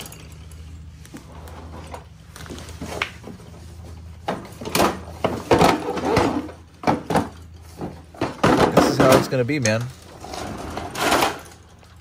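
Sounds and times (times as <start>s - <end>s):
plastic tool case knocking and scraping: 4.3s - 9.8s.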